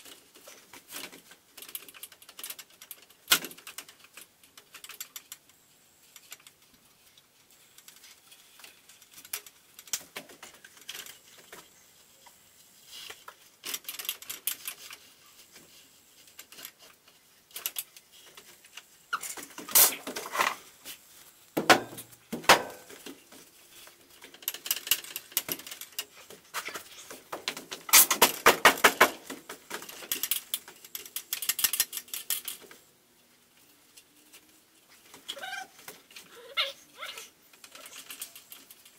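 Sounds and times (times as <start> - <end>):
metallic clicking and rattling: 21.7 - 32.8, 37.5 - 38.9.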